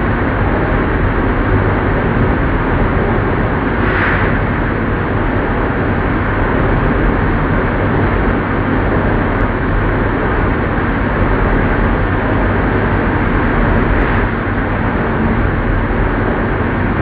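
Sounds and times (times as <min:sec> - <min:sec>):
low motor hum: 0:00.0 - 0:17.0
lathe rumbling: 0:00.1 - 0:17.0.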